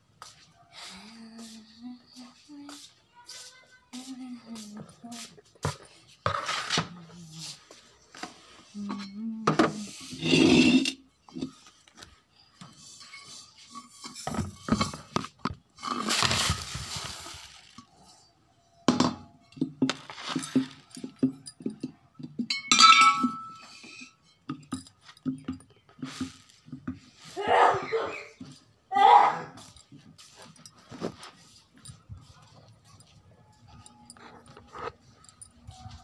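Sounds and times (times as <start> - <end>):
kitchen utensils clinking and knocking: 12.7 - 17.1, 18.9 - 27.0.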